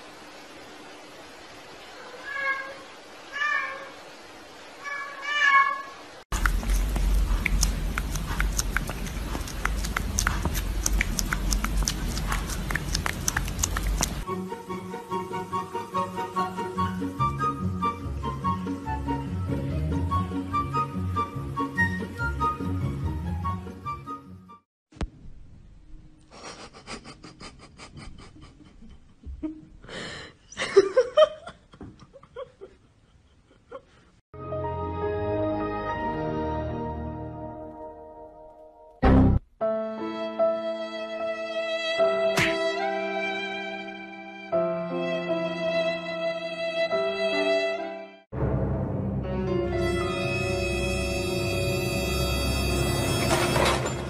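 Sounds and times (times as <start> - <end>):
rapid breathy panting: 6.4 - 14.2
short laugh-like sound: 26.3 - 29.7, 42.4 - 42.7
breathy gasp: 29.9 - 30.4.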